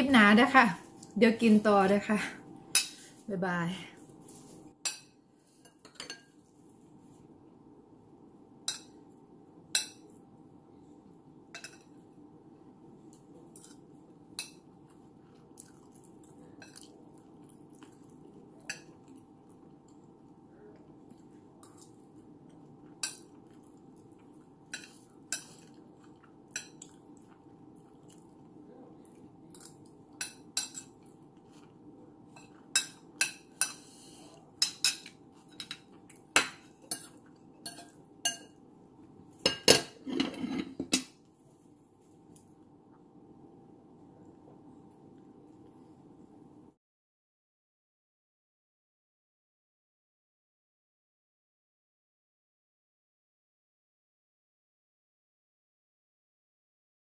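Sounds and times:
faint steady hum: 0.0 - 46.8
metal spoon clinking on plate: 34.6 - 38.6.

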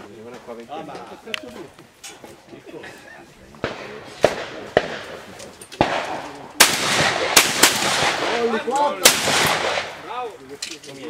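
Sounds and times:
shotguns firing: 3.6 - 10.2.

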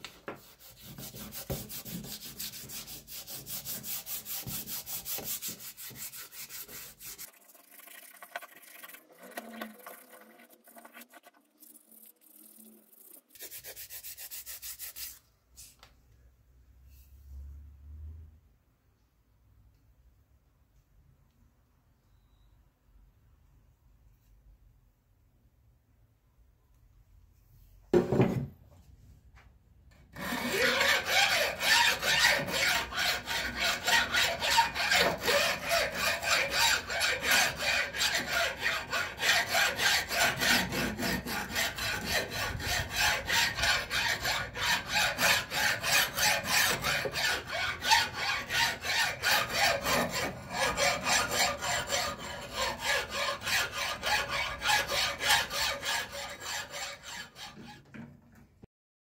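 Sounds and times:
file scraping steel: 0.4 - 7.3, 30.1 - 57.9.

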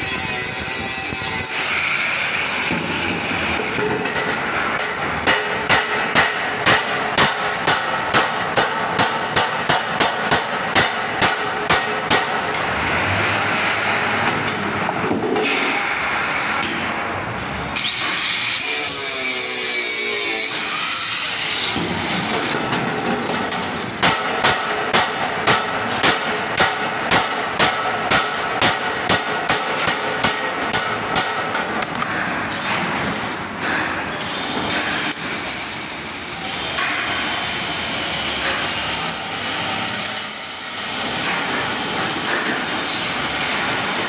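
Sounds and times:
steady background noise: 0.0 - 44.0
hammer striking metal cable tray: 3.8 - 12.6, 21.7 - 32.9.

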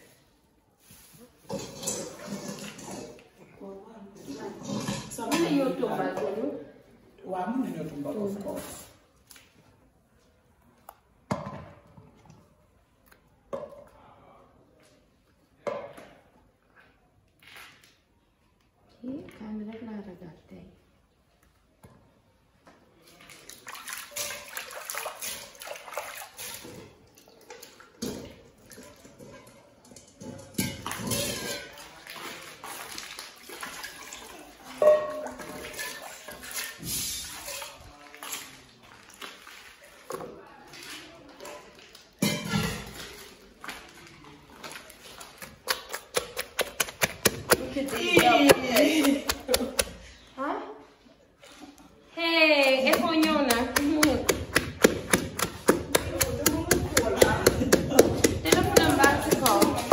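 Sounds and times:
water pouring and sloshing: 0.0 - 14.0, 21.1 - 59.9
voices: 55.8 - 59.9.

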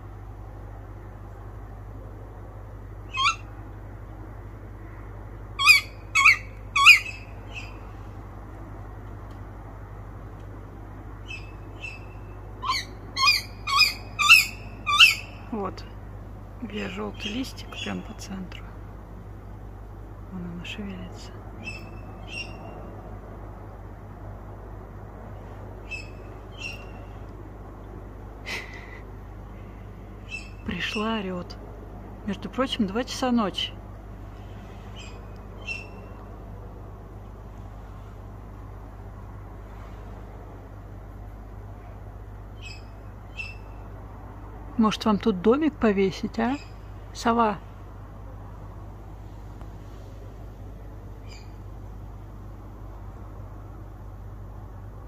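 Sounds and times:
steady low hum: 0.0 - 55.0
owl calling: 3.1 - 3.5, 5.6 - 7.9, 11.2 - 15.5, 21.6 - 22.8, 25.8 - 27.2, 30.2 - 31.2, 34.9 - 36.2, 42.6 - 43.8, 51.2 - 51.6.

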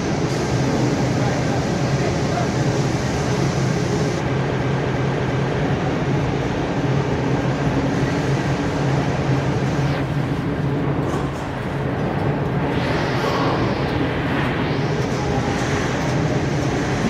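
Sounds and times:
production line machinery humming: 0.0 - 17.0.

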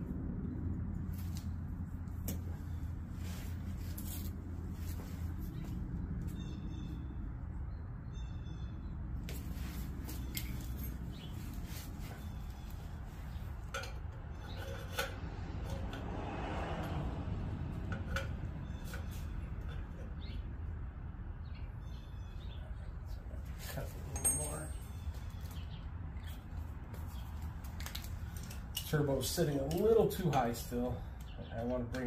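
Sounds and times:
metal tool clinks and taps: 24.1 - 24.9.

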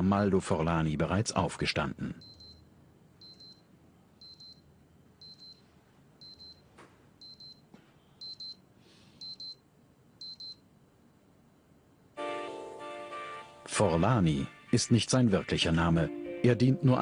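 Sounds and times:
digital alarm double beeps: 2.2 - 2.6, 3.2 - 5.6, 6.2 - 6.6, 7.2 - 7.6, 8.2 - 8.6, 9.2 - 9.6, 10.2 - 10.6.

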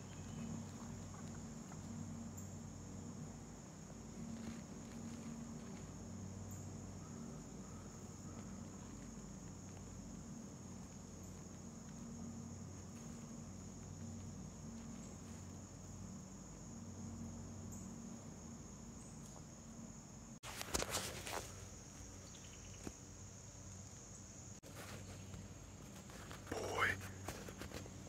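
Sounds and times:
insects chorus: 0.0 - 28.0.

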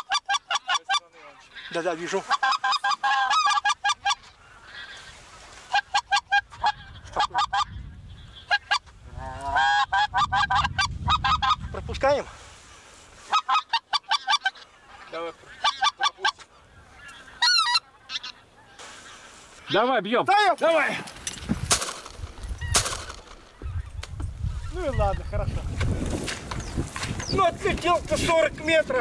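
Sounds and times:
geese honking: 0.0 - 11.7, 12.6 - 20.0
goose calls: 0.0 - 11.7, 13.2 - 19.9.

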